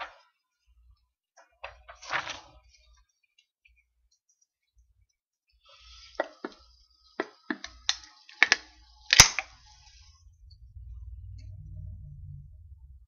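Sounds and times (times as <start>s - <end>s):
faint hiss: 5.6s - 11.8s
beer can cracking open: 7.2s - 9.6s.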